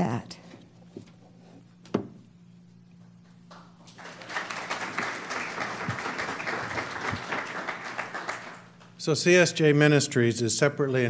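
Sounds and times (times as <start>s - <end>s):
low steady hum: 0.0s - 11.0s
audience applause: 3.9s - 8.9s.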